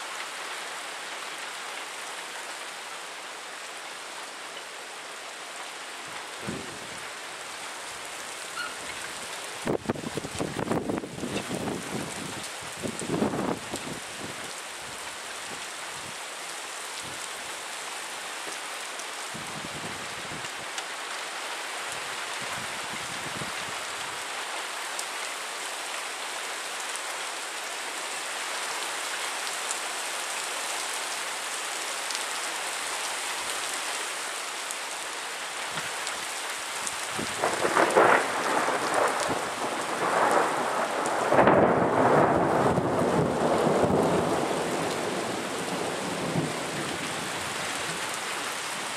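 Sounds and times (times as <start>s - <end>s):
rain hiss: 0.0s - 48.9s
thunder rumbling: 37.2s - 46.7s.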